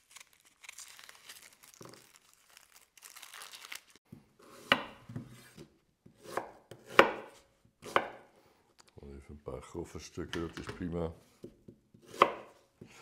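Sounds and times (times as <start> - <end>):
onion skin rustling and tearing: 0.0 - 4.0
knife chopping on wooden board: 4.4 - 8.2, 11.4 - 13.0.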